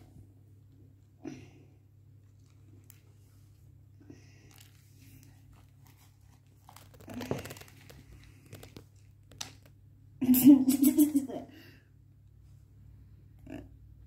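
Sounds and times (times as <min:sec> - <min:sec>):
dry seeds rustling in plastic bowl: 0:04.5 - 0:09.7.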